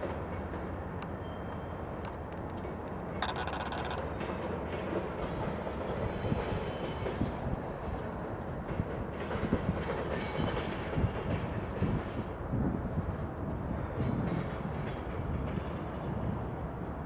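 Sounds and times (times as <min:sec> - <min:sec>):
clicks over rail joints: 0:00.5 - 0:04.0
freight train rumbling past: 0:04.0 - 0:17.0.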